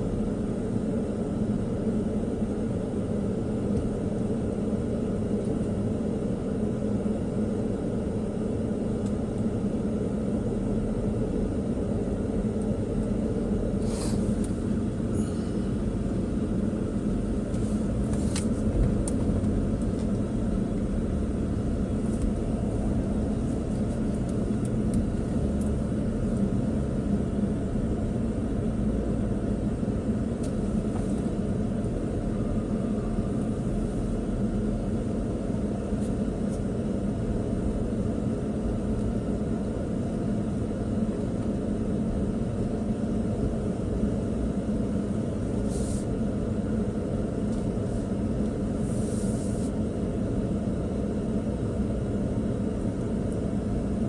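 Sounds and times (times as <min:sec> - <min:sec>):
truck engine and road rumble: 0:00.0 - 0:54.0.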